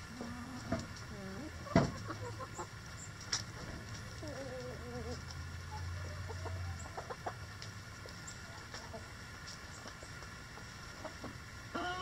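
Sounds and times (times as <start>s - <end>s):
chickens clucking: 0.0s - 12.0s
hen drawn-out call: 11.7s - 12.0s.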